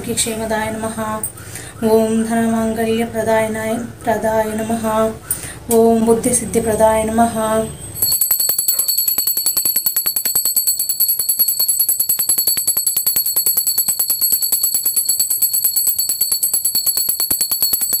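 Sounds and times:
hand bell rung rapidly: 0:08.0 - 0:18.0
steady high ringing: 0:08.0 - 0:18.0.

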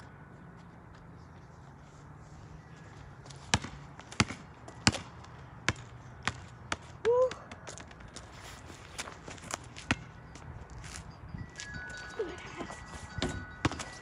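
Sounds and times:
basketball bouncing on asphalt: 0:03.2 - 0:08.4, 0:09.0 - 0:11.0, 0:13.2 - 0:14.0.

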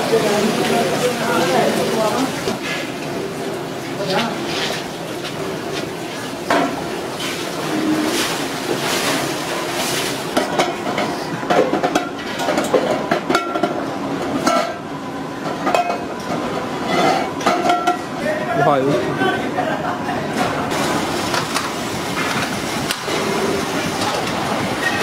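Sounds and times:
metal pots clinking and knocking: 0:10.3 - 0:13.8, 0:14.4 - 0:14.8, 0:15.4 - 0:16.1, 0:17.0 - 0:18.0.

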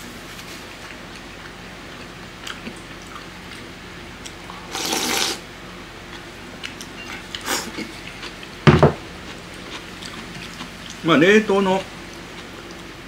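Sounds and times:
person slurping noodles: 0:04.5 - 0:05.4.

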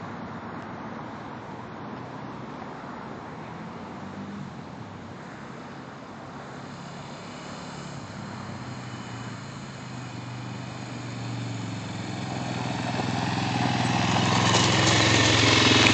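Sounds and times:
quad bike engine approaching: 0:03.8 - 0:15.9.

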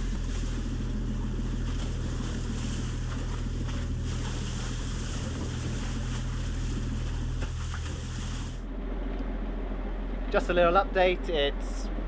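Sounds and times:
sea rushing past boat: 0:00.0 - 0:08.7
low rumble: 0:00.0 - 0:12.0.

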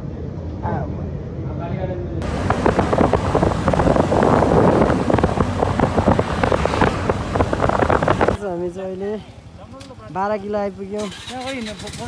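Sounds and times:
motorbike low rumble: 0:02.2 - 0:08.4
wind buffeting microphone: 0:02.2 - 0:08.6.

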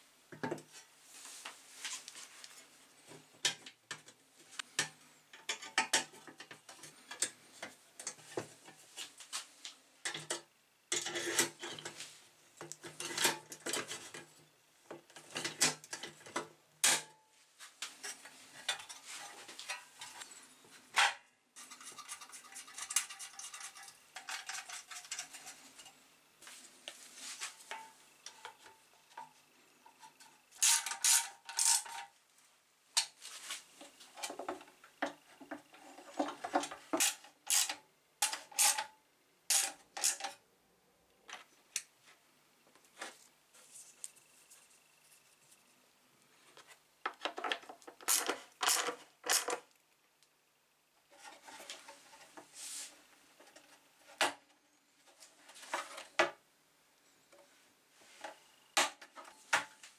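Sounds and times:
tools clicking and scraping on plastic: 0:03.4 - 0:09.1, 0:21.0 - 0:26.0, 0:27.7 - 0:32.1, 0:34.1 - 0:40.4, 0:46.6 - 0:49.8.

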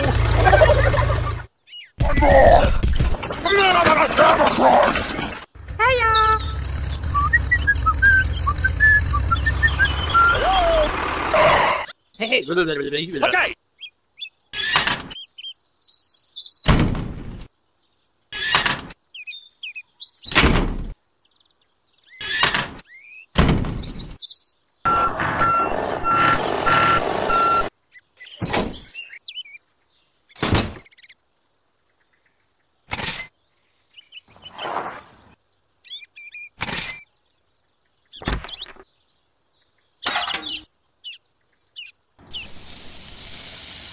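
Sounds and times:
mechanical rumble: 0:05.6 - 0:10.3
high beep: 0:24.9 - 0:27.7.

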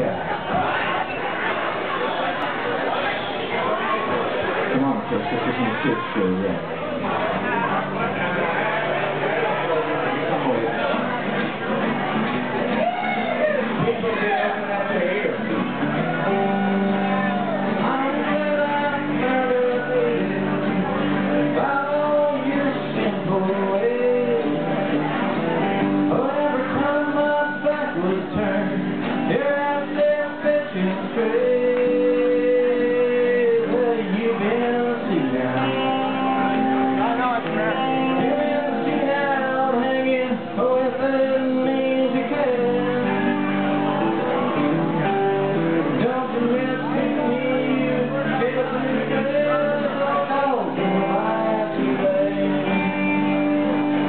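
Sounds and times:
acoustic and electric guitars: 0:00.0 - 0:54.0
man singing into a microphone: 0:13.2 - 0:15.5, 0:16.4 - 0:25.2, 0:26.0 - 0:43.7, 0:45.7 - 0:53.8.

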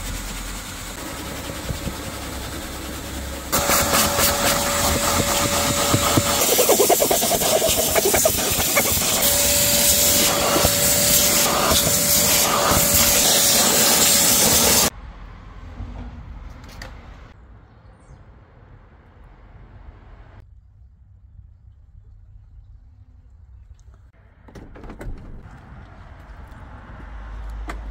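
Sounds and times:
wet vacuum rushing hiss and whine: 0:00.6 - 0:14.9.

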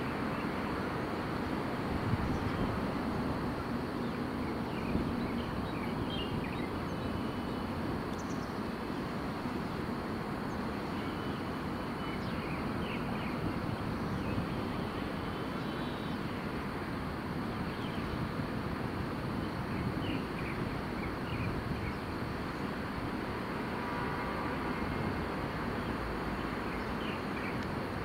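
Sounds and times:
outdoor rumble and hiss: 0:00.0 - 0:28.0
faint bird chirps: 0:10.5 - 0:13.4, 0:14.1 - 0:16.4.

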